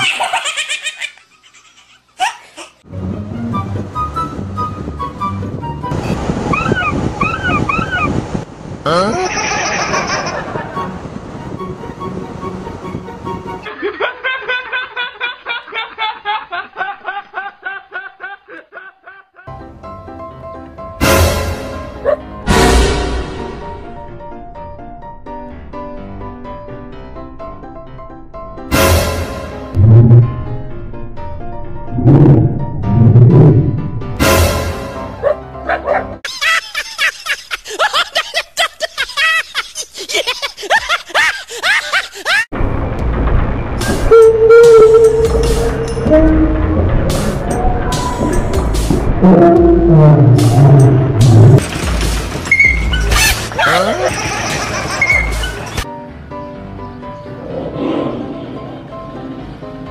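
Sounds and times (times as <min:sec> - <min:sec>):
high-pitched giggling: 0:00.0 - 0:02.8, 0:08.9 - 0:10.6
music: 0:02.8 - 0:06.1, 0:10.3 - 0:13.7, 0:19.5 - 0:36.2, 0:43.0 - 0:59.9
man laughing hard: 0:08.9 - 0:10.8, 0:13.7 - 0:19.5, 0:36.2 - 0:42.5, 0:53.6 - 0:55.3.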